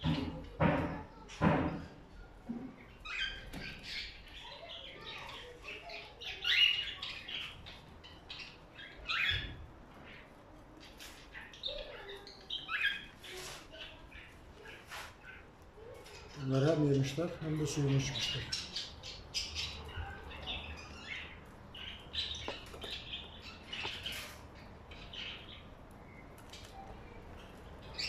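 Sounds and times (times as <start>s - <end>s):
cockatiels chirping and squawking: 2.8s - 25.6s.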